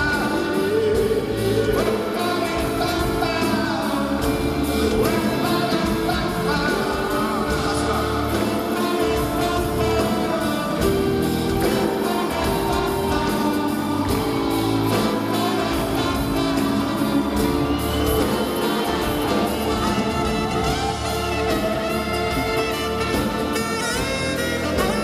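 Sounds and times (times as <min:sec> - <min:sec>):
live rock band playing: 0:00.0 - 0:25.0
person singing: 0:00.0 - 0:25.0.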